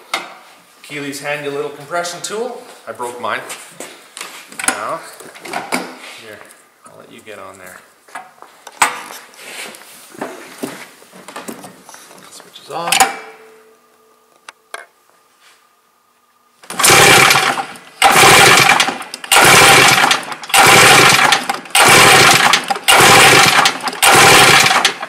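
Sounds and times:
faint hum: 11.8 - 16.6
engine cranking without firing: 16.7 - 25.0.

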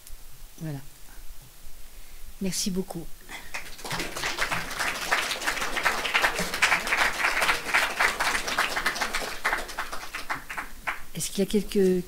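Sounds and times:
audience applauding: 3.5 - 11.1.

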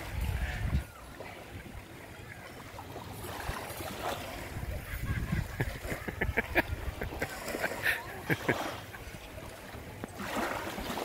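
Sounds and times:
wind rumbling on microphone: 0.0 - 2.2, 2.8 - 7.8
small waves lapping: 0.0 - 11.0
water splashes: 0.0 - 11.0.

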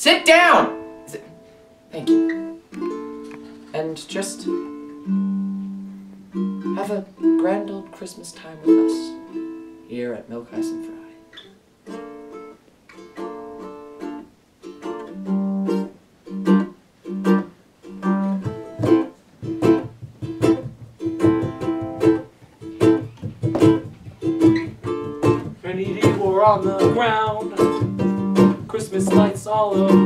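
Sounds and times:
ukulele playing: 0.4 - 30.0
low drum thumps: 18.4 - 30.0.

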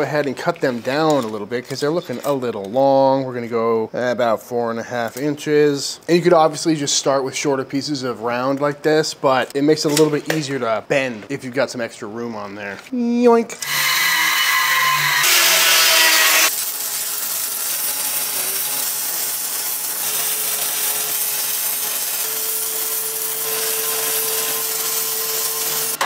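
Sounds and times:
power tool cutting: 13.6 - 26.0
welder crackling sizzle: 13.6 - 26.0.

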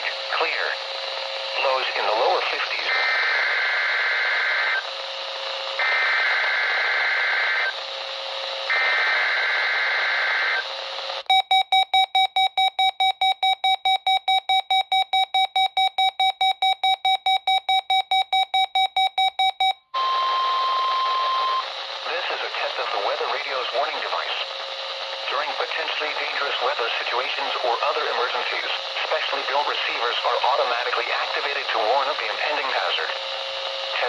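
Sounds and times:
broadcast hiss: 21.1 - 33.2.

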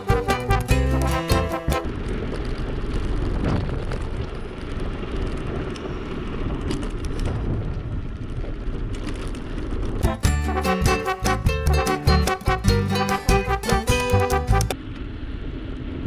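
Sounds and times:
bicycle tyres rolling on paving: 0.0 - 10.1
wind rumbling on microphone: 0.0 - 10.1.

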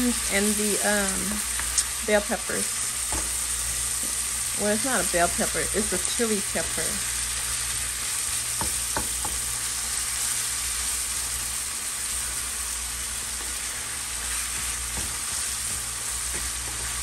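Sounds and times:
sausage sizzling in a frying pan: 0.0 - 17.0
spatula knocking on pan: 8.6 - 9.4.

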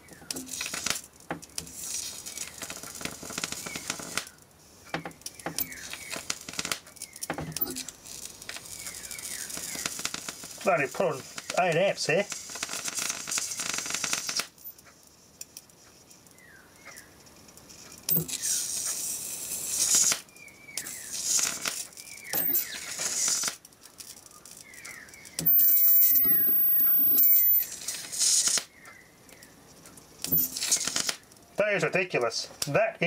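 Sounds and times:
electric arc hissing and crackling: 0.0 - 14.7, 17.3 - 32.8
thin high whine: 20.8 - 23.5, 25.3 - 28.6, 30.2 - 31.1.

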